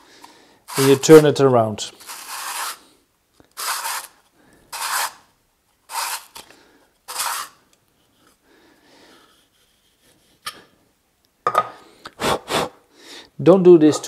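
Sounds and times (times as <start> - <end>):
grinding cup rasping on brake shoes: 0.7 - 1.2.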